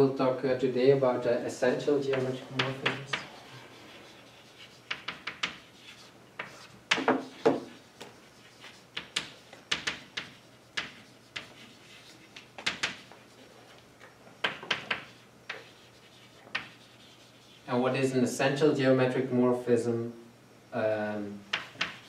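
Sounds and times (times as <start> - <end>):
chalk tapping and scratching: 2.0 - 13.8, 14.4 - 17.7, 21.5 - 22.0.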